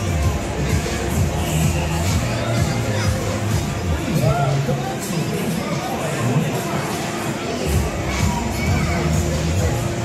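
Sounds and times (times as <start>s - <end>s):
low bass: 0.0s - 4.5s
crowd shouting and screaming: 0.0s - 10.0s.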